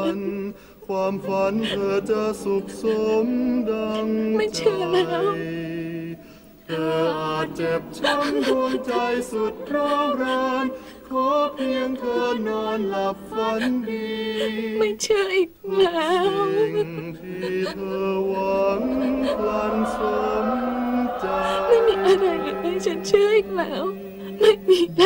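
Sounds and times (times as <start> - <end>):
wordless choir singing: 0.0 - 14.9, 15.8 - 25.0
orchestral soundtrack music: 18.3 - 24.8.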